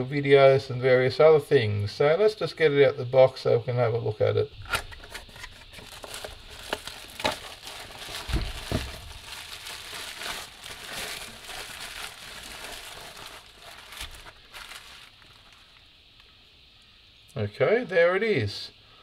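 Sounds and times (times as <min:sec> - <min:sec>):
bubble wrap crinkling: 0:04.7 - 0:15.9
cardboard box handled: 0:05.1 - 0:09.5
knocks and thuds: 0:08.1 - 0:09.3.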